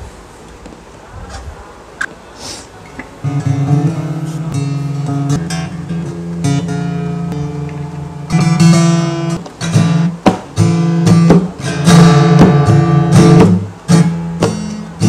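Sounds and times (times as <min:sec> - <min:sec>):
acoustic guitar strumming: 0:03.2 - 0:15.0.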